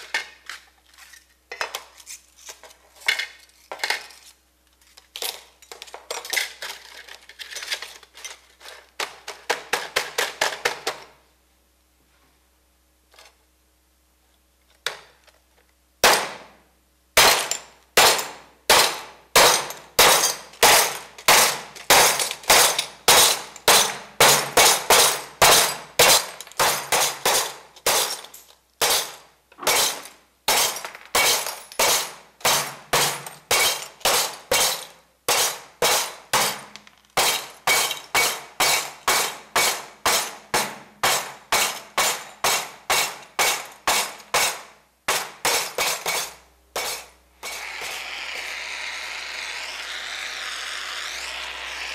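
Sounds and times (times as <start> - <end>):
hammer smashing glass: 17.2 - 47.6.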